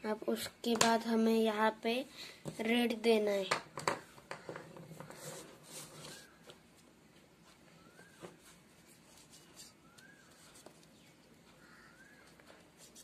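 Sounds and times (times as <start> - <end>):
oil pastel scratching paper: 12.7 - 13.0.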